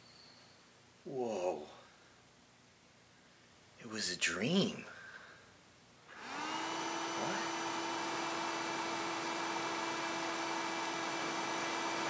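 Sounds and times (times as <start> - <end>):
handheld vacuum cleaner whine: 6.1 - 12.0.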